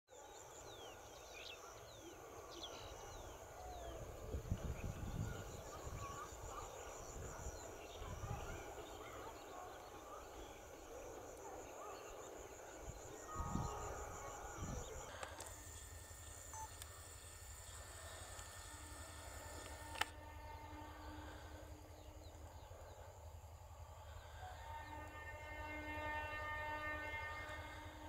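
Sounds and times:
high pulsing buzz: 12.3 - 26.4.

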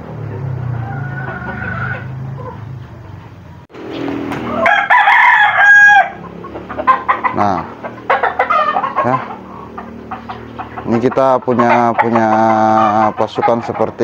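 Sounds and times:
chicken clucks and calls: 0.0 - 14.0
rooster crowing: 0.4 - 2.6, 4.4 - 6.5.

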